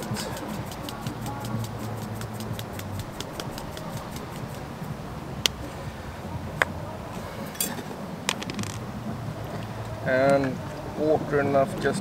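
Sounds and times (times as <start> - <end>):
salt mill clicking: 0.1 - 4.7.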